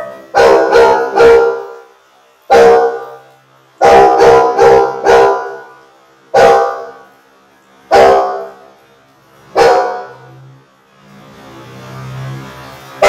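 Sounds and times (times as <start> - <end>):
dog barking: 0.0 - 1.9, 2.5 - 3.2, 3.8 - 5.7, 6.3 - 7.0, 7.9 - 8.6, 9.5 - 10.3.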